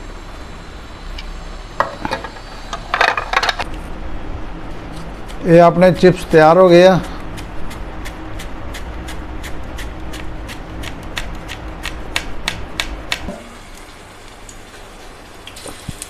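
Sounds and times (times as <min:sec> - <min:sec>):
banana scraping over slicer blade: 0:04.8 - 0:12.1.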